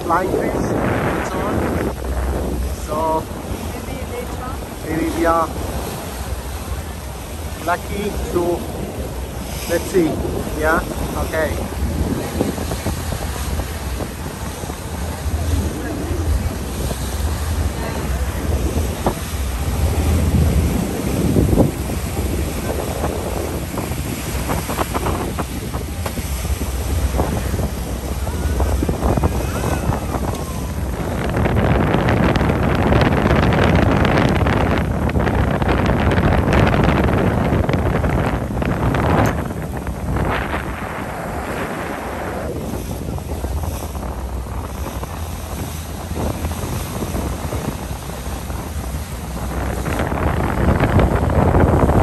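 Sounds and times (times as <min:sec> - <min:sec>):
steady low rumble: 0:00.0 - 0:52.0
waves splashing: 0:00.0 - 0:52.0
wind buffeting microphone: 0:00.0 - 0:52.0.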